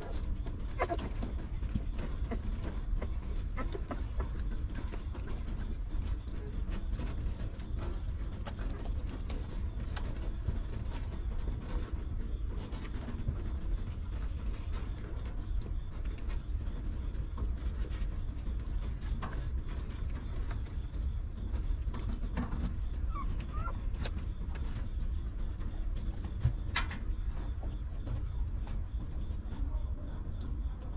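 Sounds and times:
puppy squeaks: 23.1 - 23.8.

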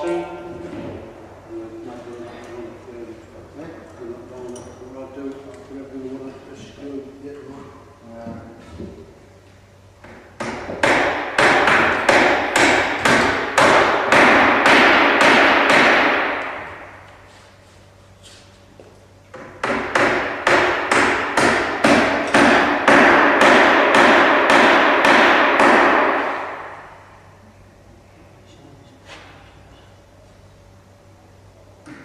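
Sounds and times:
hammer striking timber: 10.4 - 16.8, 19.4 - 26.8.

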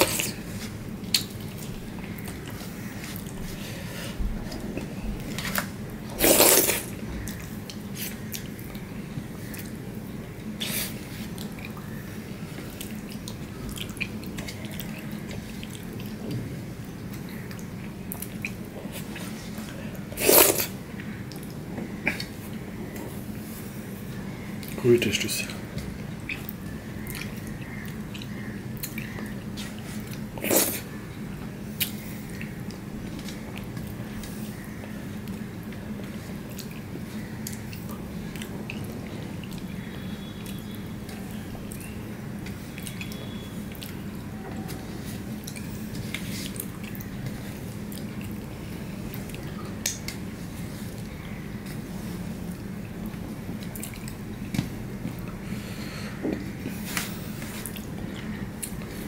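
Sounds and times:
steady low hum: 0.0 - 59.0
mouth sounds of eating: 17.2 - 22.6, 24.6 - 31.0.

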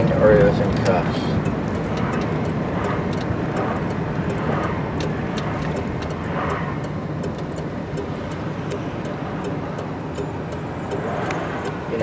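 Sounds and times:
road and engine rumble: 0.0 - 12.0
faint clicks: 0.8 - 11.8.

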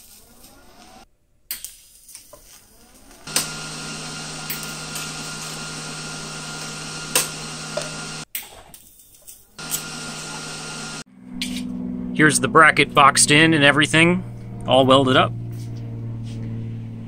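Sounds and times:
welder arc sizzling: 0.0 - 1.0, 1.9 - 8.3, 9.1 - 11.1.

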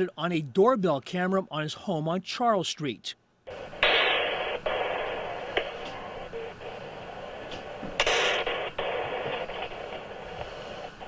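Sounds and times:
firework bangs: 3.5 - 6.7, 7.4 - 11.0.

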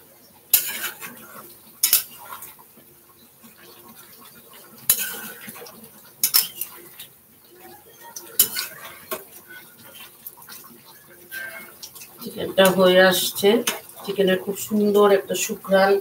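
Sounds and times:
light sizzle: 0.0 - 16.0
metal spatula scraping a pan: 0.5 - 2.6, 3.5 - 16.0
spatula clinking against metal: 1.8 - 2.2, 4.9 - 5.4, 6.2 - 6.8, 7.9 - 9.7, 11.3 - 12.8.

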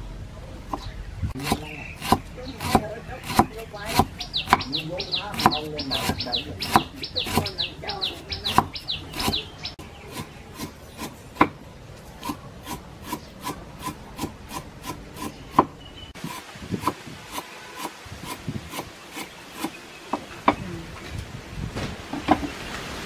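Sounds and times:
knife chopping on wooden block: 1.4 - 7.6, 8.5 - 9.4, 10.1 - 11.6, 12.2 - 20.6.

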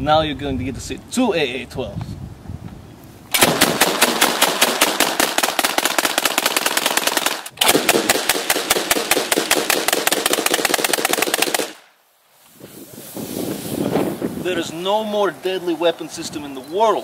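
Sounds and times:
automatic shotgun fire: 3.3 - 11.8.

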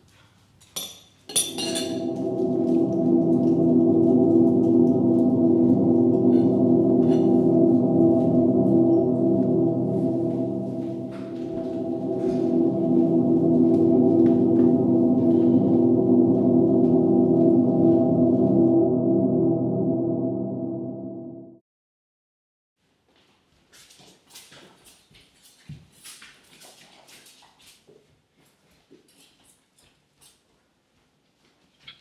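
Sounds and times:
low drone with gong-like ring: 1.3 - 21.6.

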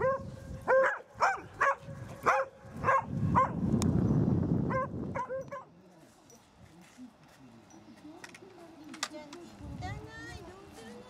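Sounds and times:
dog barking: 0.0 - 3.6, 4.7 - 5.7.

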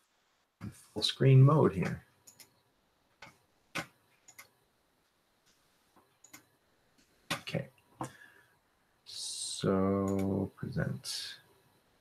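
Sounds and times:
computer mouse clicking: 2.2 - 2.6, 3.2 - 4.6, 6.2 - 6.5.

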